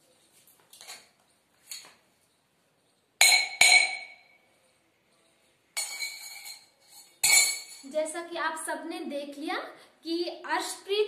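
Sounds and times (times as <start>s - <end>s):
spoon striking drinking glass: 3.2s - 4.2s.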